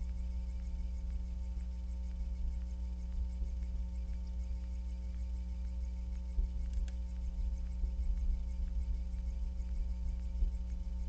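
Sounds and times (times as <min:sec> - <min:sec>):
constant tonal hum: 0:00.0 - 0:11.0
faint scattered ticks: 0:00.0 - 0:11.0
steady low rumble: 0:00.0 - 0:11.0.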